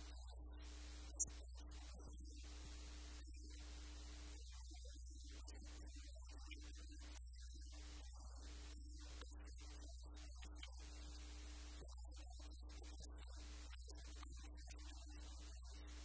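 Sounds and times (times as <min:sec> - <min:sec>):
faint hiss: 0:00.0 - 0:04.5.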